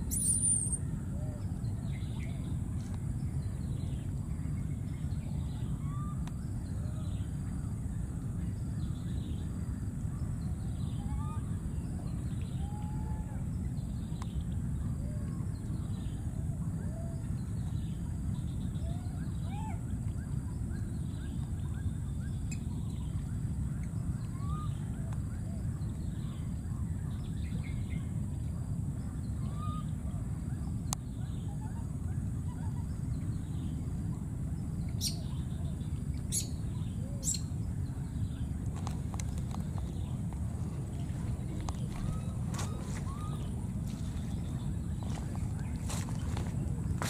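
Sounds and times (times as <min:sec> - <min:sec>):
steady low rumble: 0:00.0 - 0:47.0
chirping animal calls: 0:38.8 - 0:46.6.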